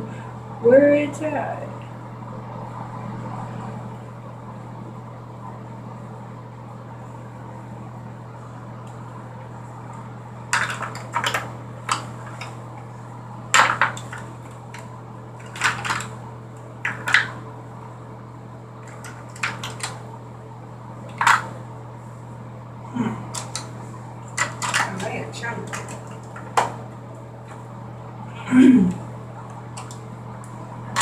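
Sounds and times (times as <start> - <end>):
steady low hum: 0.0 - 31.0
small hard items clattering: 10.5 - 12.5, 13.5 - 14.8, 15.4 - 16.1, 16.8 - 17.3, 18.8 - 20.0, 21.1 - 21.5, 23.3 - 23.7, 24.4 - 26.7.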